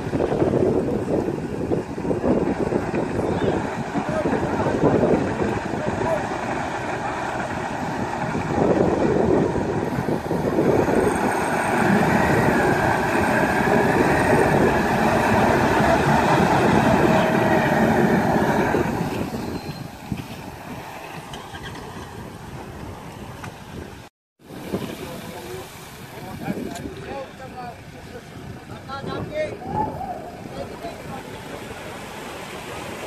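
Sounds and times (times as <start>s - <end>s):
towing vehicle engine: 0.0s - 29.0s
outboard motors running hard: 0.1s - 20.8s
prop wash churning: 0.1s - 23.4s, 30.2s - 33.0s.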